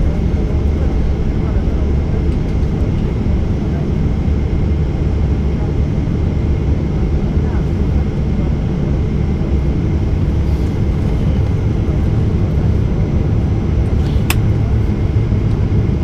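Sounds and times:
jet engines idling in cabin: 0.0s - 16.0s
sharp click: 14.0s - 14.5s.

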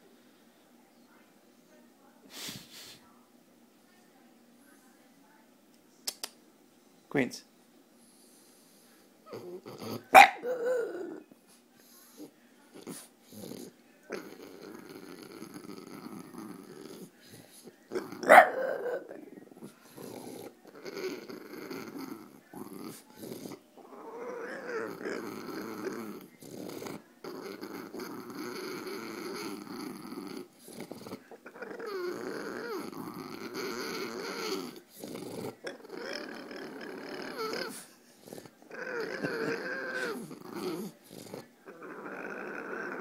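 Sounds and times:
dog grumbling and growling: 9.2s - 11.3s, 12.1s - 43.0s.

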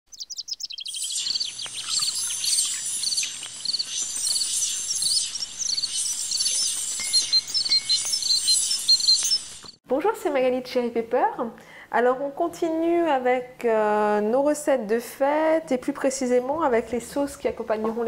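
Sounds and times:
small birds chirping: 0.1s - 9.8s.

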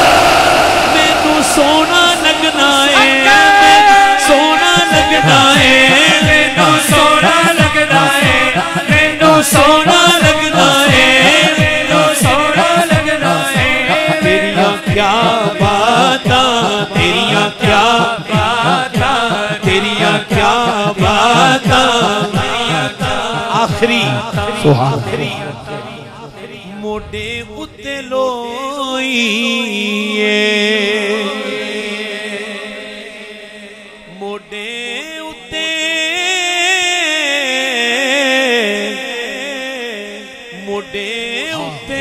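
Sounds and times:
men chanting: 0.0s - 28.6s, 29.2s - 42.0s.

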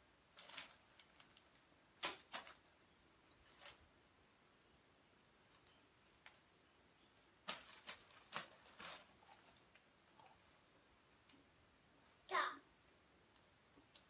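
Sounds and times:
plastic bag crinkling: 0.3s - 3.9s, 7.4s - 10.5s.

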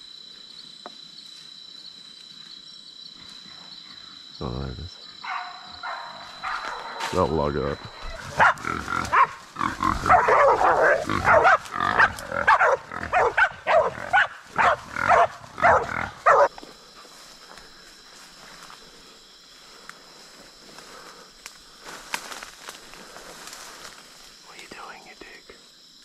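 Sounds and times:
faint steady high tone: 6.2s - 8.2s
pig squealing: 8.0s - 16.4s.

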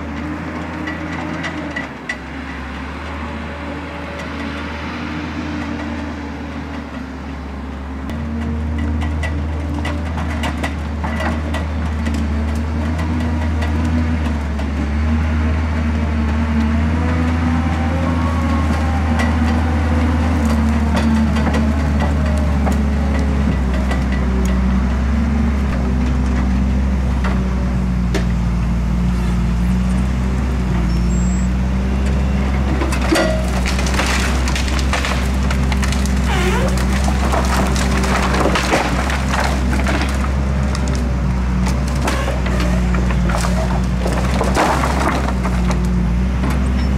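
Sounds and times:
diesel engine under load: 0.0s - 46.9s
branches cracking and snapping: 17.9s - 24.6s, 32.9s - 46.6s.

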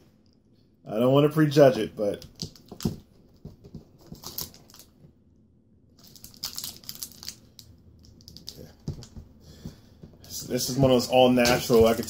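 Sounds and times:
wrapper crinkling: 4.0s - 5.0s, 6.0s - 9.1s.

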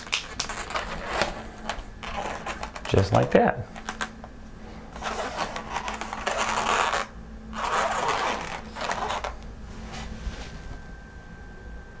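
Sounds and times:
balloons rubbing and crackling: 0.0s - 4.2s, 4.9s - 10.2s.

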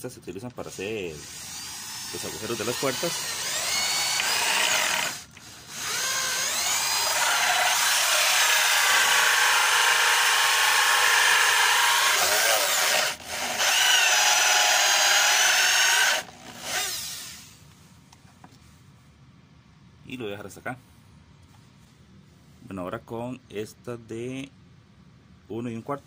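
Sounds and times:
electric drill cutting wood: 1.2s - 17.6s.

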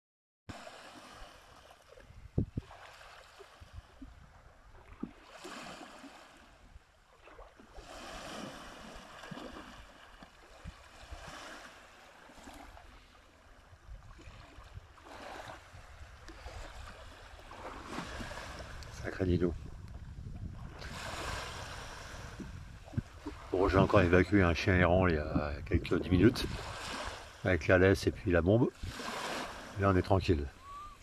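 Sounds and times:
small waves washing onto shore: 0.5s - 31.0s
wind rumbling on microphone: 2.0s - 2.8s, 3.5s - 5.1s, 13.6s - 31.0s.

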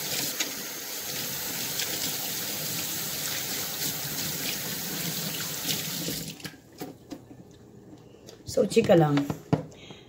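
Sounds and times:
person washing hands: 0.0s - 6.6s.

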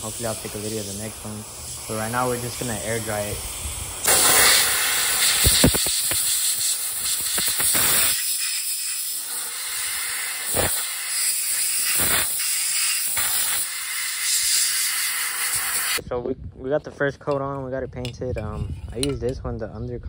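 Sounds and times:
aerosol can spraying: 0.0s - 16.0s.

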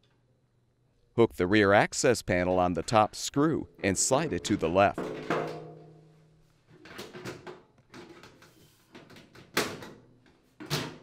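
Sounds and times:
metal panel ringing tone: 3.6s - 6.3s
sheet metal scraping and rattling: 3.7s - 6.2s.

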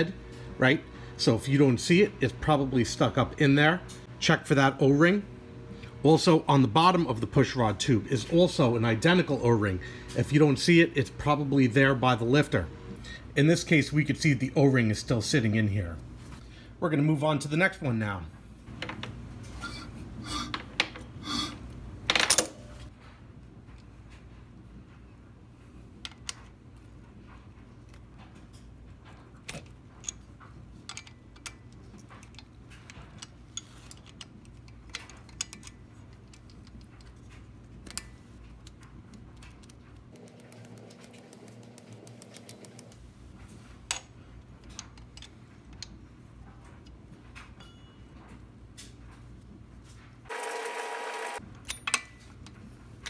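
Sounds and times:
low hum: 0.0s - 8.9s.

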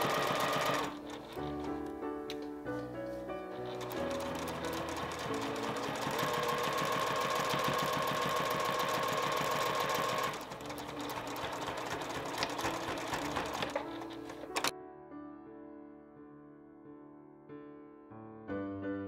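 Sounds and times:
sewing machine stitching: 0.0s - 1.9s, 3.5s - 14.7s.

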